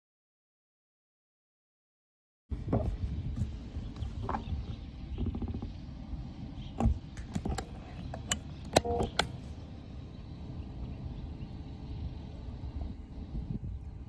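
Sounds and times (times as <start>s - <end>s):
wind buffeting microphone: 2.5s - 7.6s, 10.6s - 14.0s.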